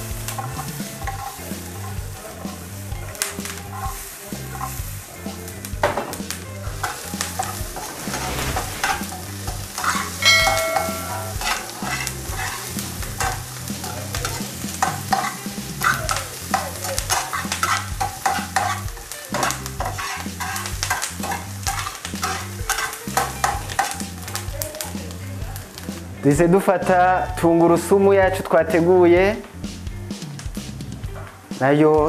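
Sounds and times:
vegetables sizzling in oil: 0.0s - 28.6s, 29.5s - 32.0s
pan scrapes and clatter: 6.8s - 12.6s, 19.4s - 22.9s
short ringing clink: 10.2s - 11.2s.

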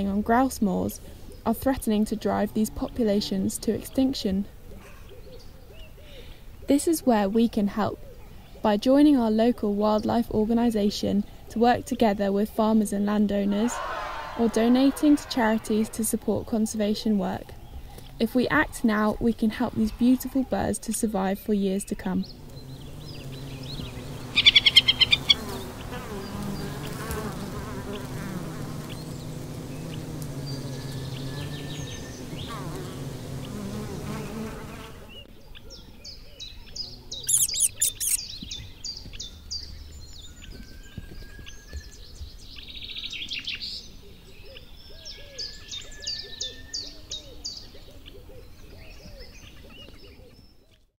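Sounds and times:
small birds calling: 21.6s - 50.9s
insect buzzing: 22.2s - 35.3s, 37.2s - 38.2s.

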